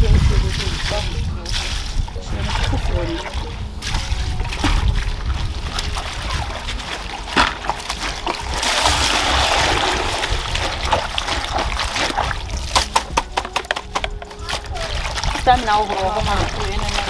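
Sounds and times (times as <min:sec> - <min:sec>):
water sloshing and splashing: 0:00.0 - 0:17.0
leaves squished in water: 0:14.2 - 0:17.0.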